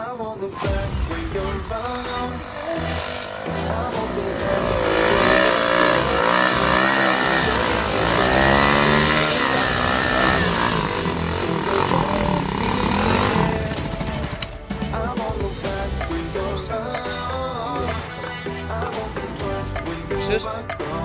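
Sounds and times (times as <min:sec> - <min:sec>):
dirt bike engine revving: 0:00.4 - 0:18.0
wheel spinning throwing dirt: 0:00.5 - 0:15.1.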